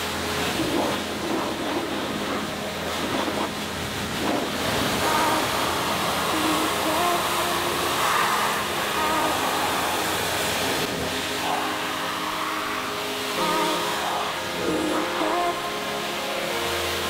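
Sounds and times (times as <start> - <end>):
pressure washer spray hissing: 0.0 - 17.0
background music: 5.0 - 17.0.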